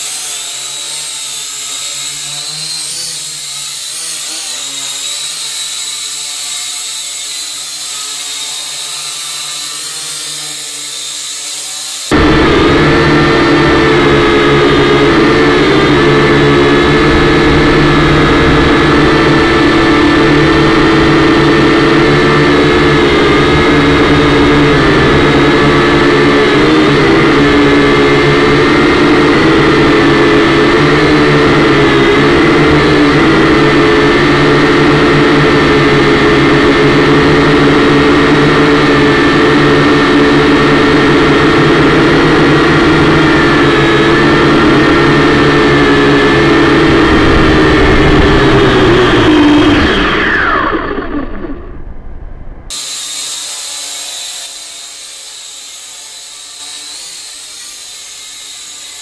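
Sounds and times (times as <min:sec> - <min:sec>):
quadcopter propellers whirring: 0:00.0 - 0:59.0.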